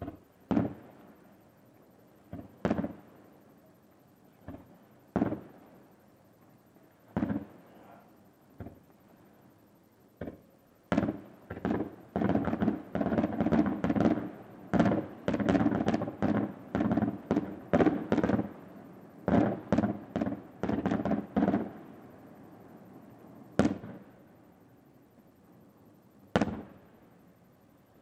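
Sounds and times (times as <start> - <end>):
firework shells bursting: 0.0 - 3.2, 8.5 - 22.0, 23.4 - 24.2, 26.3 - 27.0.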